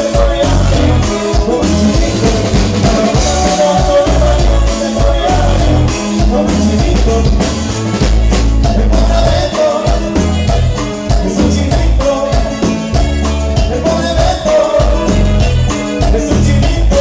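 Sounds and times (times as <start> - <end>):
live band dance music: 0.0 - 17.0
person singing: 0.0 - 17.0.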